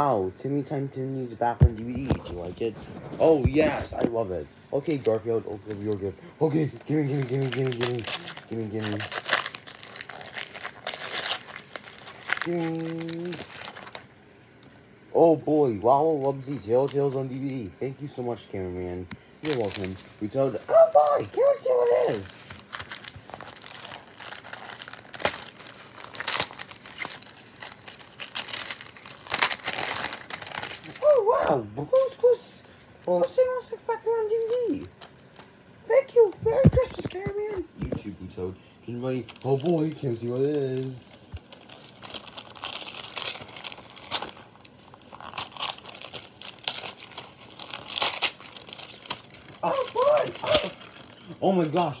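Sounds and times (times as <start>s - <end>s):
wrapping paper tearing and crumpling: 1.8s - 14.1s, 16.0s - 17.6s, 19.4s - 31.4s, 39.0s - 52.0s.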